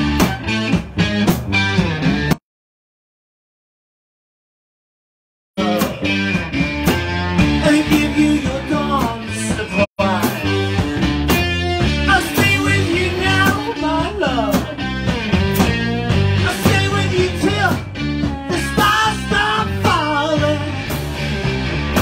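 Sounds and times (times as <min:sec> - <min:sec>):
live rock band playing: 0:00.0 - 0:02.4, 0:05.6 - 0:22.0
person singing: 0:05.6 - 0:06.3, 0:07.4 - 0:11.1, 0:12.0 - 0:14.9, 0:16.4 - 0:21.0.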